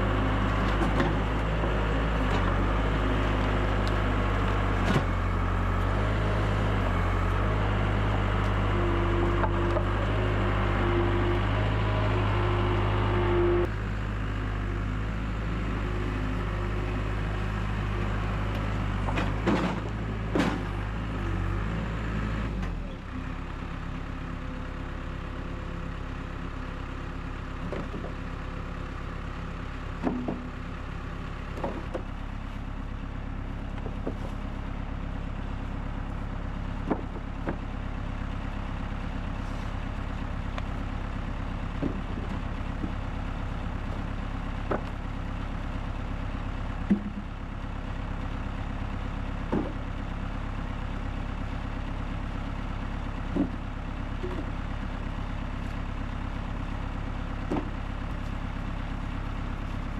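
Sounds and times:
diesel engine running: 0.0 - 59.9.

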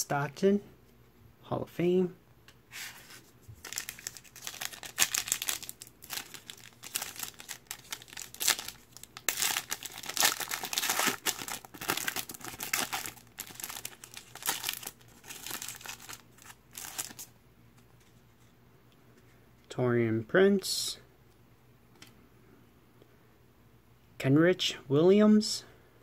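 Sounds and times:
foil wrapper crinkling and tearing: 3.6 - 17.3.

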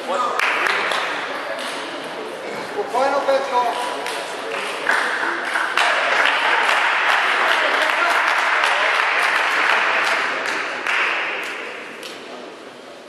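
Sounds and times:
spectators applauding: 0.3 - 1.7, 3.7 - 12.1.

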